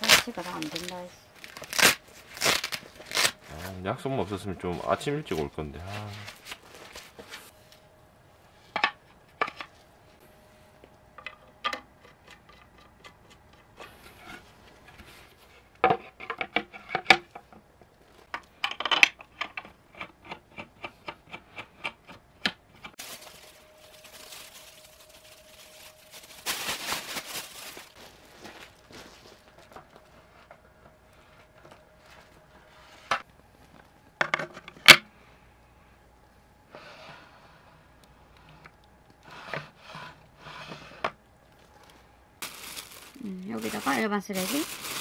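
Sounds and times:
canvas fabric rustling: 0:00.0 - 0:03.7, 0:23.0 - 0:29.5, 0:42.4 - 0:45.0
wooden parts clicking and knocking: 0:15.8 - 0:22.9.

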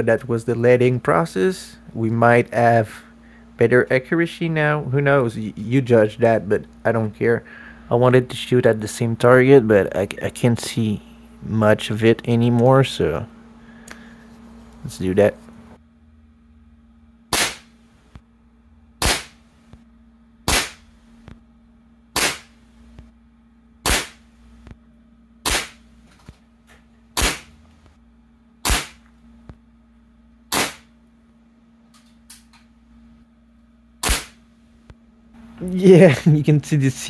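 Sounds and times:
faint steady hum: 0:00.0 - 0:37.0
air rifle shots cracking: 0:17.3 - 0:17.7, 0:19.0 - 0:19.4, 0:20.5 - 0:20.8, 0:22.2 - 0:22.5, 0:23.8 - 0:24.2, 0:25.4 - 0:25.8, 0:27.2 - 0:27.5, 0:28.6 - 0:29.0, 0:30.5 - 0:30.9, 0:34.0 - 0:34.4.

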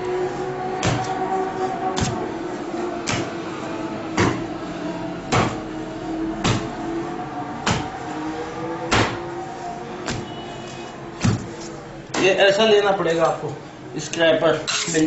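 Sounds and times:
dough slapped on work surface: 0:03.0 - 0:03.3, 0:10.0 - 0:10.3.

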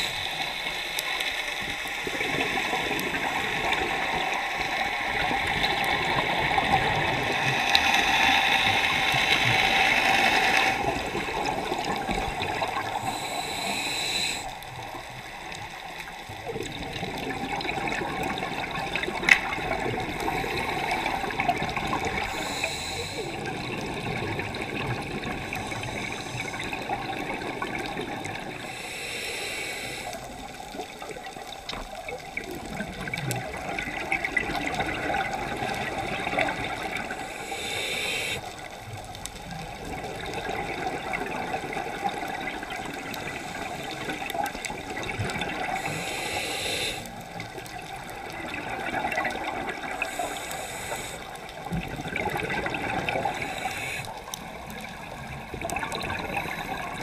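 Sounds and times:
exhaled bubbles gurgling: 0:00.0 - 0:57.0
diver inhaling through regulator: 0:12.8 - 0:14.6, 0:20.0 - 0:23.8, 0:25.3 - 0:27.2, 0:28.4 - 0:30.6, 0:36.7 - 0:38.6, 0:45.6 - 0:47.4, 0:49.8 - 0:51.5, 0:52.6 - 0:54.6, 0:56.0 - 0:57.0.

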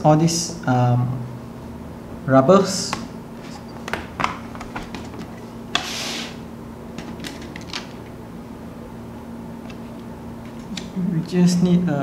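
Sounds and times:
short scrape: 0:05.8 - 0:06.4.

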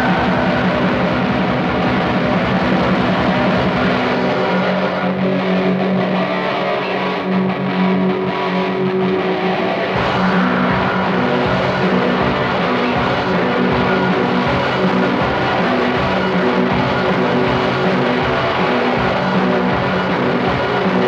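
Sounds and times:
fast drumming: 0:00.0 - 0:04.9, 0:10.0 - 0:21.0
distorted electric guitar: 0:00.0 - 0:21.0.

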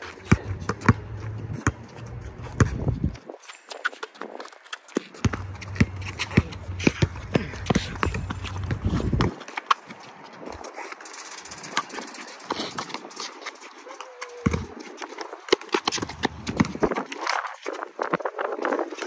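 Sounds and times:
basketball bouncing on concrete: 0:00.0 - 0:03.2, 0:05.0 - 0:10.0, 0:14.0 - 0:14.9, 0:15.5 - 0:17.0.

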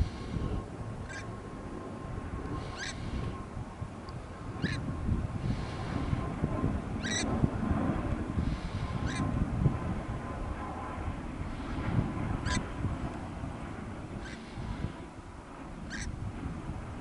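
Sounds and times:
wind rumble on microphone: 0:00.0 - 0:17.0
bird calling: 0:01.1 - 0:01.3, 0:02.6 - 0:03.2, 0:04.6 - 0:04.8, 0:07.0 - 0:07.3, 0:09.0 - 0:09.3, 0:12.4 - 0:12.6, 0:14.2 - 0:14.5, 0:15.9 - 0:16.1.

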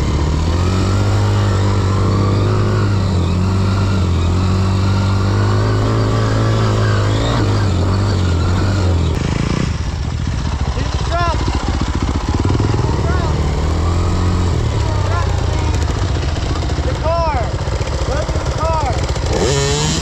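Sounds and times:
dirt bike engine running: 0:00.0 - 0:20.0.

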